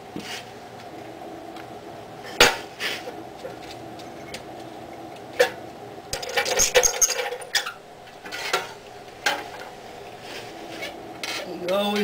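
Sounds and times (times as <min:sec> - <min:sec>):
metal clanks and clinks: 0:06.2 - 0:09.7.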